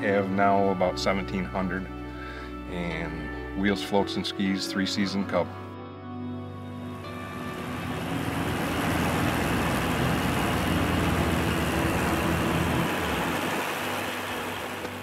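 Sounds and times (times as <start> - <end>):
light aircraft engine and propeller: 6.9 - 15.0.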